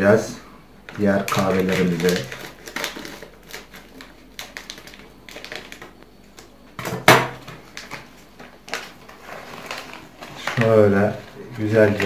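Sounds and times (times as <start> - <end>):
foil bag crinkling: 0.8 - 6.5, 7.2 - 12.0
scissors snipping foil bag: 1.0 - 6.0.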